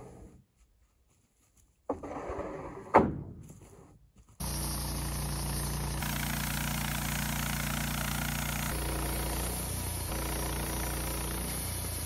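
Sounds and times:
sawmill engine running: 4.4 - 12.0.

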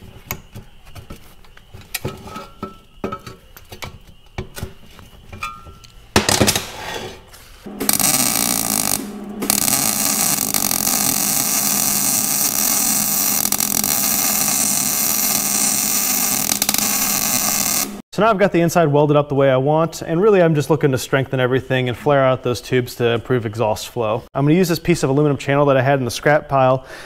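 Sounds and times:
loud burst of noise: 7.7 - 18.0
welding arc buzzing: 7.7 - 18.0.

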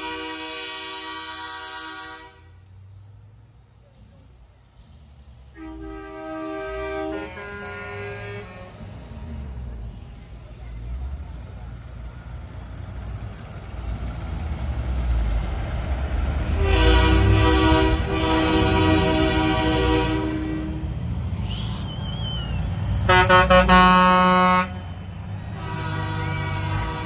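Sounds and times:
truck air horns blowing: 0.0 - 2.7, 5.5 - 9.1, 16.5 - 21.0, 23.0 - 27.0
diesel engines rumbling: 0.0 - 27.0.

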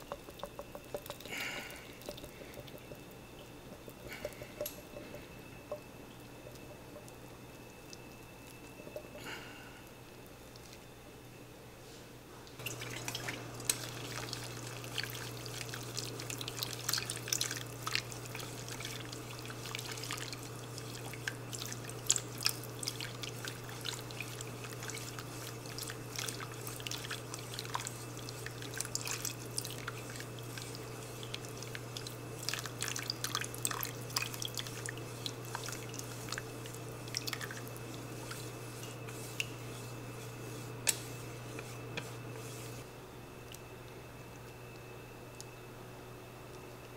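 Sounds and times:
chopsticks stirring: 0.0 - 7.2, 12.6 - 42.9
sauce bubbling in a frying pan: 0.0 - 9.2, 12.6 - 42.7
steady low hum: 0.0 - 46.9.

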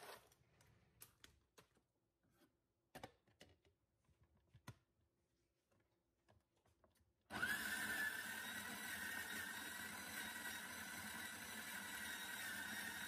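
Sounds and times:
coffee grinder motor grinding: 7.3 - 13.0.

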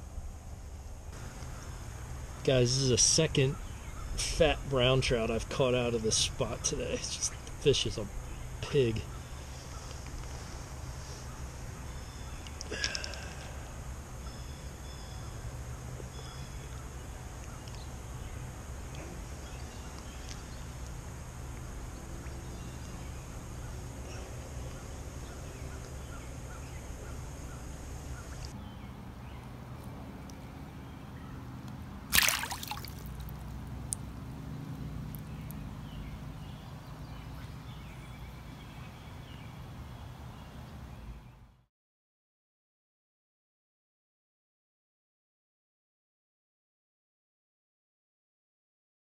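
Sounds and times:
creek water sloshing and trickling: 32.1 - 34.0.

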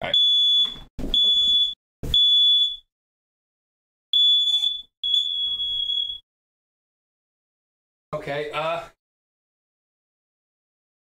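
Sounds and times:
smoke alarm beeps: 0.1 - 2.9, 4.1 - 6.3.

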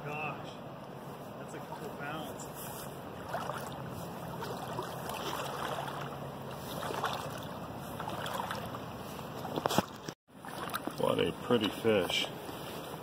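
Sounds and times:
river flowing: 0.9 - 12.4.

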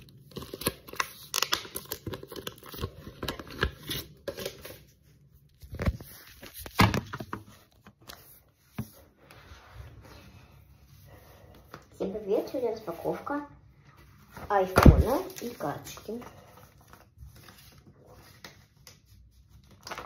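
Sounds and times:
plastic packaging crinkling: 0.0 - 4.8.

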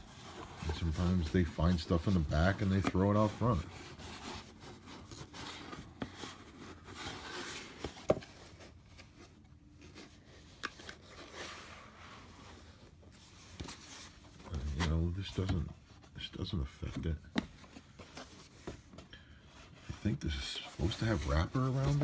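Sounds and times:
cardboard rubbing and scraping: 0.0 - 10.3, 19.7 - 22.0.

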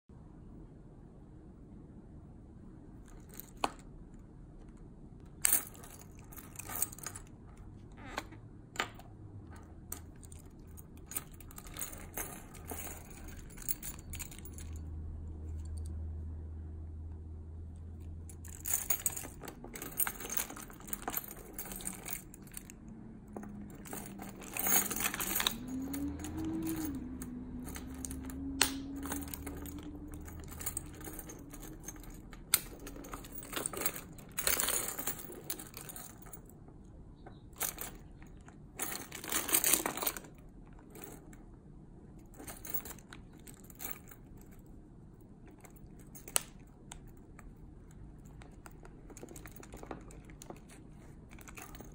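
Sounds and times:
keys jangling on keyring: 5.4 - 7.3, 9.9 - 15.9, 18.2 - 36.5, 37.5 - 41.4, 42.2 - 44.7, 45.4 - 51.9
rustling handling: 5.4 - 8.3, 18.2 - 36.6, 37.2 - 41.4, 45.4 - 51.9.

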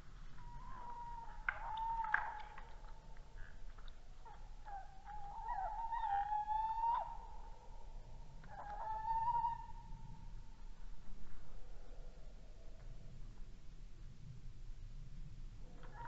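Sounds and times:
owl hooting: 4.2 - 7.7, 8.4 - 10.2.

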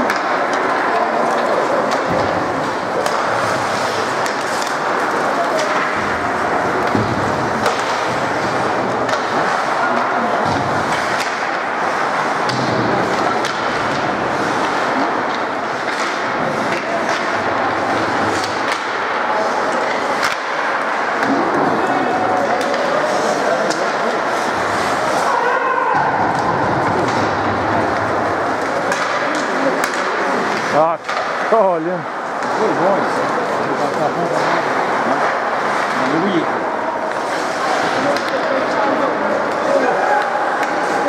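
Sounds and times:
skate blades scraping ice: 0.0 - 25.7, 34.2 - 41.0
hockey sticks and puck clacking: 0.0 - 41.0.

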